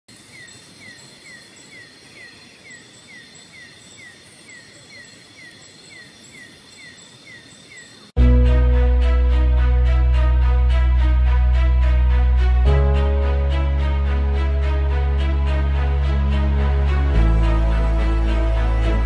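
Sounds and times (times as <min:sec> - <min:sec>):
insects droning high-pitched: 0:00.1 - 0:08.2
loud music: 0:08.2 - 0:19.0.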